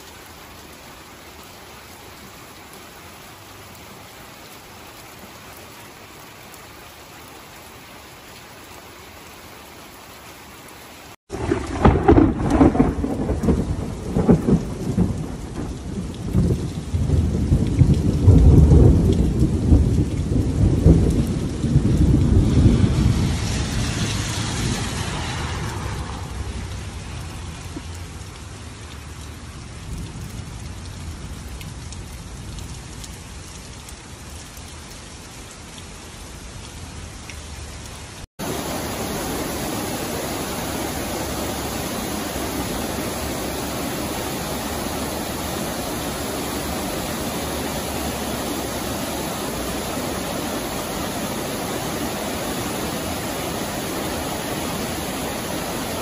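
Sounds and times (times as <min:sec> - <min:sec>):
steady rain falling: 0:00.0 - 0:56.0
floodwater pouring over a weir: 0:11.3 - 0:35.3, 0:37.2 - 0:56.0.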